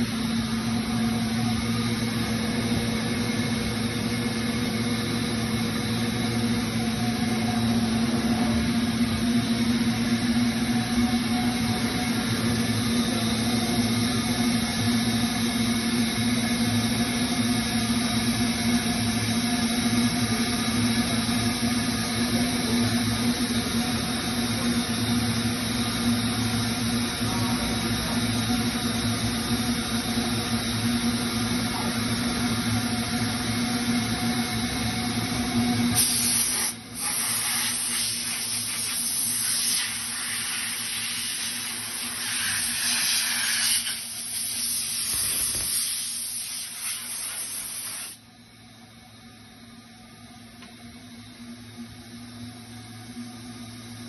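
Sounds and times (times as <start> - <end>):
machine humming: 0.0 - 36.1
air blow gun hissing: 35.9 - 48.2.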